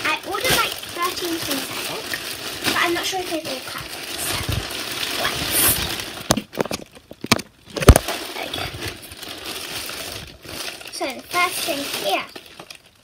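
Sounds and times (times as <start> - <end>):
plastic bag rustling: 0.0 - 13.0.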